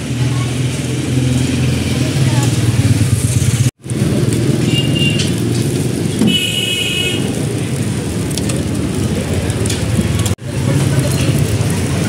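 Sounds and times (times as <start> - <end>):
street traffic: 0.0 - 12.0
vehicle horn: 4.6 - 5.4, 6.2 - 7.4.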